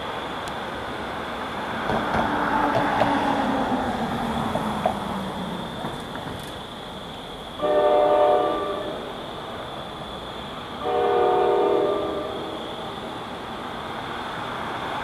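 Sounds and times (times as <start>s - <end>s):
train horn blasts: 7.6s - 9.1s, 10.8s - 12.6s.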